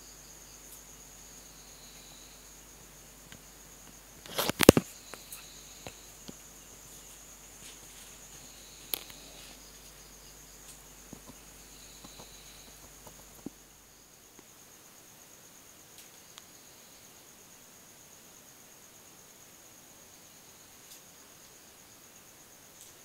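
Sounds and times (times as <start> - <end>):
cricket trilling: 0.0 - 23.0
sharp click: 4.3 - 5.4.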